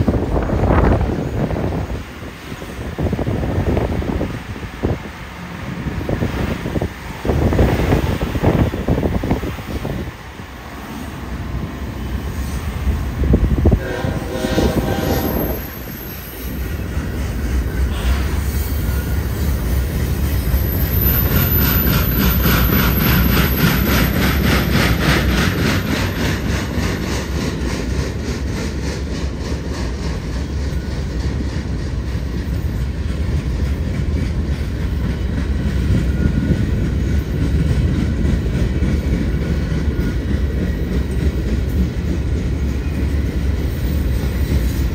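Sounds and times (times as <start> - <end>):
low rumble of train: 0.0 - 44.9
train horn: 13.6 - 16.4, 17.9 - 19.3
wheels clacking over rail joints: 15.1 - 44.9.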